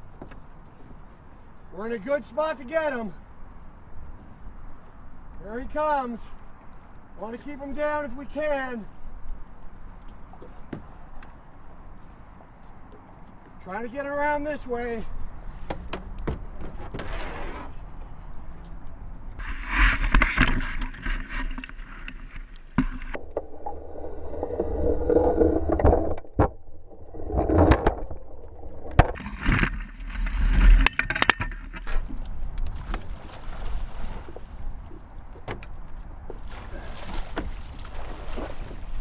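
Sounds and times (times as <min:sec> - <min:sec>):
water splashing and gurgling: 0:19.4 - 0:39.0.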